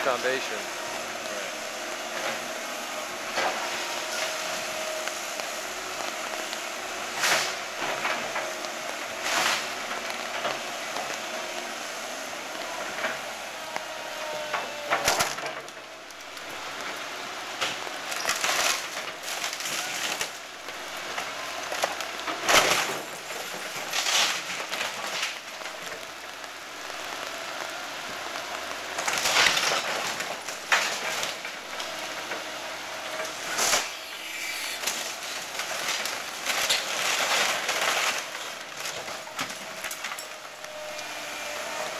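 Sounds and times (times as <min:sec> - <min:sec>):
excavator humming: 0:00.0 - 0:41.9
timber cracking and splintering: 0:03.3 - 0:11.3, 0:13.8 - 0:41.9
crashes of falling debris: 0:07.1 - 0:11.2, 0:14.3 - 0:17.0, 0:17.6 - 0:27.3, 0:28.1 - 0:41.9.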